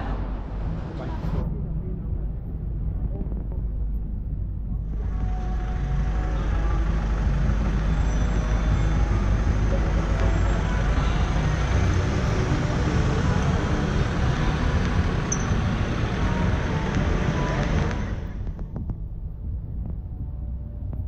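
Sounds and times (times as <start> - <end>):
rumble of passing vehicles: 0.0 - 21.0
background voices: 4.6 - 18.6.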